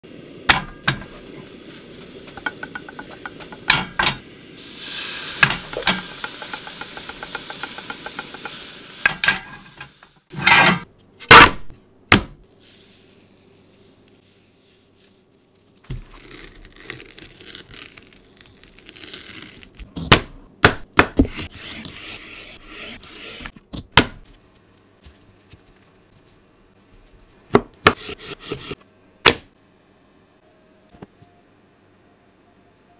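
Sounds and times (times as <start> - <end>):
food sizzling in a frying pan: 0.0 - 10.9
plastic-wrapped cucumber rustling: 15.4 - 19.8.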